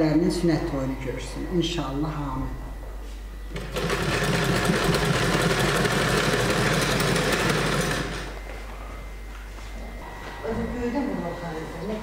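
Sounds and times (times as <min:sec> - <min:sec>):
sewing machine stitching: 0:03.5 - 0:08.4.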